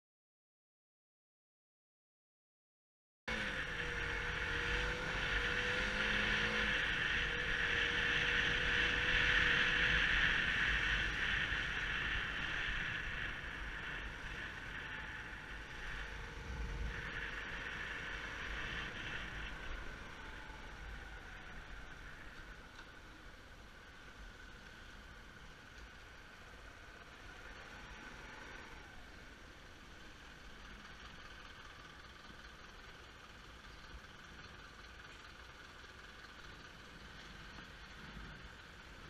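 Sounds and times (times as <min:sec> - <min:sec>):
motorcycle engine running: 0:03.3 - 0:39.0
wind rushing over microphone: 0:03.5 - 0:21.8.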